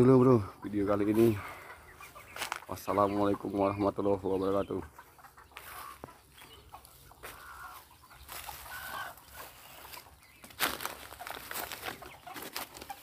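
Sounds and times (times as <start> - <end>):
chickens clucking: 0.0 - 13.0
scuffing and rustling: 2.3 - 2.8, 5.6 - 13.0.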